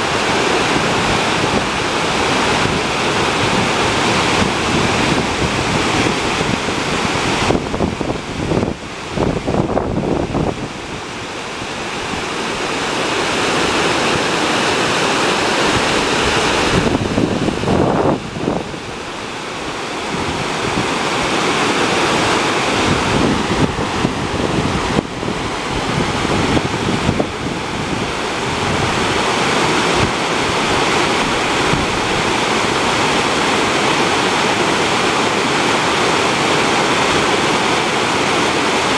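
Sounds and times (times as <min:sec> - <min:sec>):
wind rumble on microphone: 0:00.0 - 0:34.8
water rushing over spillway: 0:00.0 - 0:38.9.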